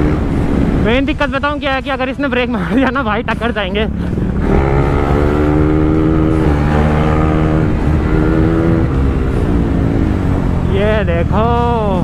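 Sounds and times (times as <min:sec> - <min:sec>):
motorcycle engine at high revs: 0:00.0 - 0:00.9, 0:03.8 - 0:12.0.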